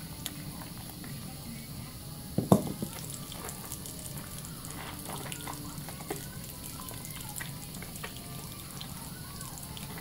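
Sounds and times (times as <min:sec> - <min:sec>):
faucet running into a sink: 0:02.4 - 0:10.0.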